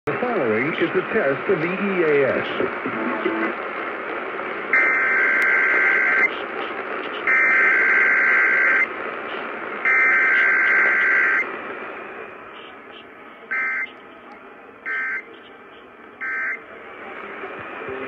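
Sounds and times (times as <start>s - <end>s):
static hiss: 0.1s - 14.1s.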